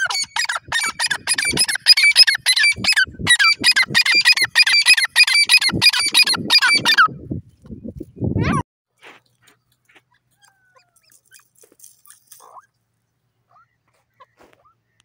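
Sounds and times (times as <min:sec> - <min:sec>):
bird calling in squeaky notes: 0:00.0 - 0:07.1, 0:10.0 - 0:12.7, 0:13.5 - 0:15.0.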